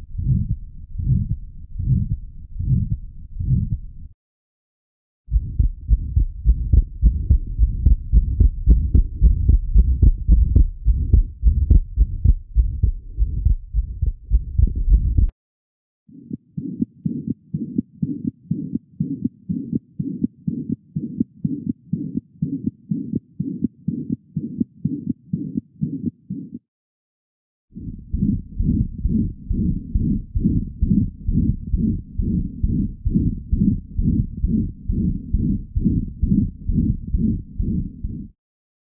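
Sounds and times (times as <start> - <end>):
heartbeat through stethoscope: 0.0 - 3.9, 5.3 - 15.3, 16.1 - 26.6, 27.8 - 38.4
fast quiet heartbeat with murmur: 0.0 - 4.0, 5.3 - 15.3, 16.1 - 26.6, 27.8 - 38.4.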